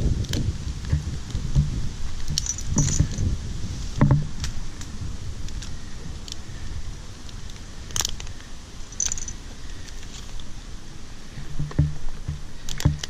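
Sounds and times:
steady low rumble: 0:00.0 - 0:13.0
climbing hardware clinking: 0:02.2 - 0:03.3, 0:08.9 - 0:10.4
metallic ring: 0:02.3 - 0:03.3, 0:08.9 - 0:09.4.

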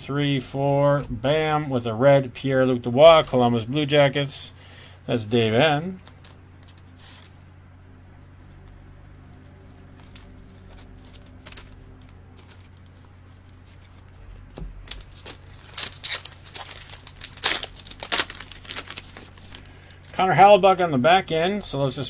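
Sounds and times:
steady low hum: 0:00.0 - 0:22.0
wrappers crinkling and tearing: 0:05.9 - 0:07.5, 0:09.5 - 0:14.2, 0:14.8 - 0:20.3
cards being handled: 0:05.9 - 0:07.6, 0:08.4 - 0:20.2.

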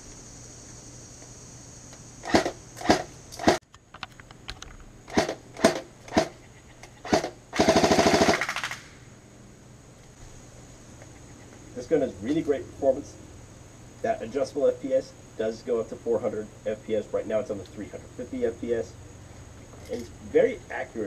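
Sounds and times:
airsoft rifle full-auto burst: 0:02.2 - 0:03.6, 0:05.1 - 0:06.3, 0:07.0 - 0:09.0.

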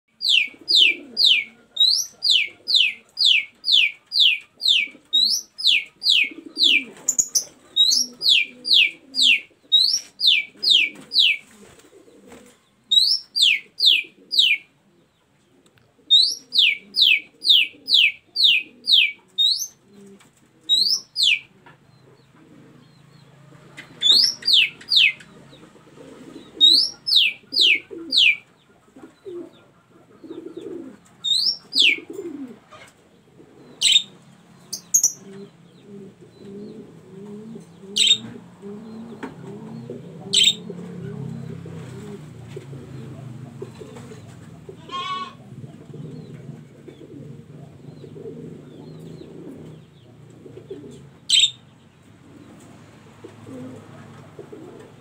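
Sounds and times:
bird whistling calls: 0:00.2 - 0:11.4, 0:12.9 - 0:14.7, 0:16.1 - 0:19.8, 0:20.7 - 0:21.5, 0:24.0 - 0:25.3, 0:26.6 - 0:28.4, 0:31.2 - 0:32.1, 0:33.8 - 0:34.1, 0:34.7 - 0:35.3, 0:38.0 - 0:38.3, 0:40.3 - 0:40.7, 0:51.3 - 0:51.7.

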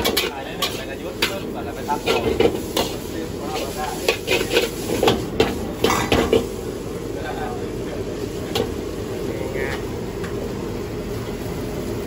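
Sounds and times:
spatula scraping a steel wok: 0:00.0 - 0:06.5
frying sizzle: 0:00.0 - 0:12.0.

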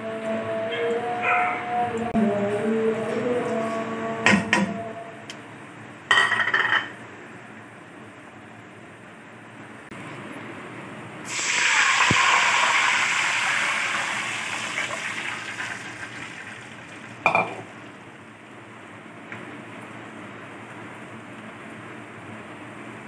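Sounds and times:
water pouring into a pot: 0:11.3 - 0:17.2.

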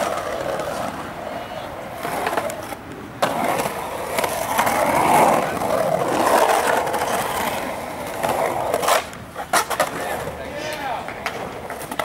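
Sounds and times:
skateboard wheels rolling on concrete: 0:00.0 - 0:12.0
skateboard clicks: 0:01.9 - 0:12.0.

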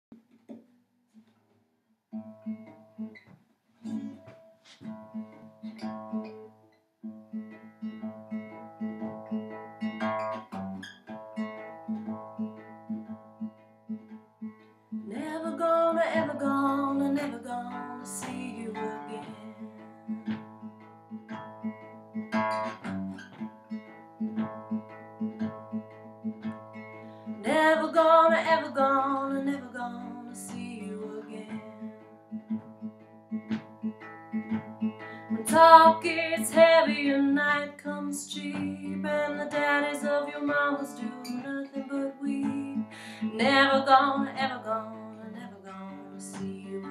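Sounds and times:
fingerpicked acoustic guitar blues: 0:02.1 - 0:46.9
woman singing: 0:15.1 - 0:19.8, 0:27.4 - 0:32.0, 0:35.3 - 0:46.9.

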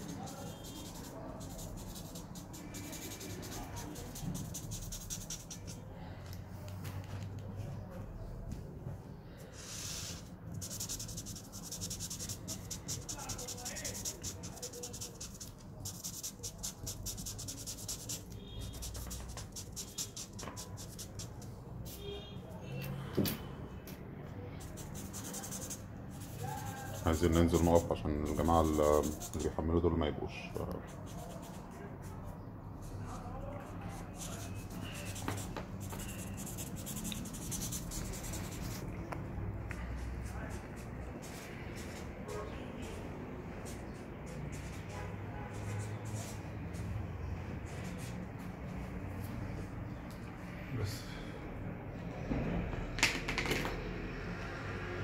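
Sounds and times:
marker scratching on card: 0:00.0 - 0:05.9, 0:09.5 - 0:22.0, 0:24.6 - 0:29.6, 0:30.7 - 0:39.0
marker tip squeaks: 0:34.1 - 0:38.7.

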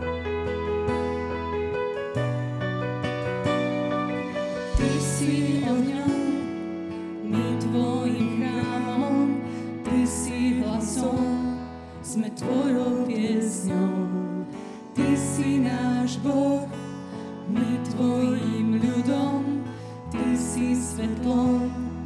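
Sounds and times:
guitar: 0:00.0 - 0:22.0
worship band playing gospel song: 0:02.9 - 0:22.0
person singing: 0:04.5 - 0:22.0.

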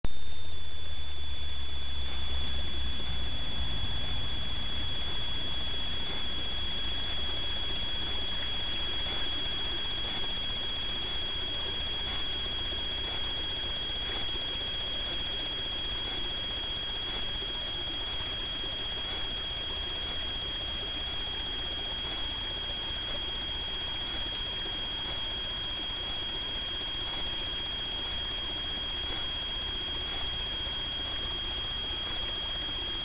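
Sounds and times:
high-pitched electronic whine: 0:00.1 - 0:33.0.

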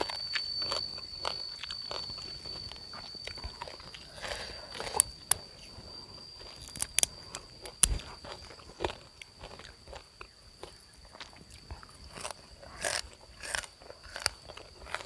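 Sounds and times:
steady high-pitched tone: 0:00.0 - 0:10.4
crunchy chewing: 0:00.0 - 0:15.0.

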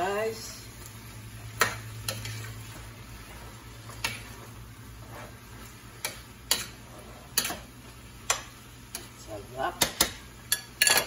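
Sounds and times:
metal spoon clinking on pan: 0:06.0 - 0:06.8, 0:09.8 - 0:11.0.

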